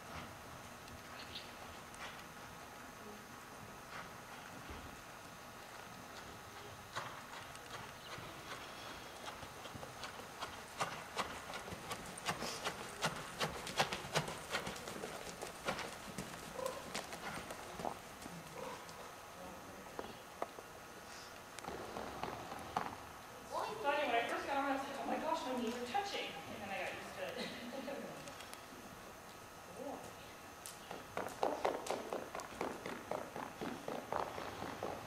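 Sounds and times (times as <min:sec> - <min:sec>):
horse hoofbeats on sand: 0:06.2 - 0:18.8, 0:30.9 - 0:35.0.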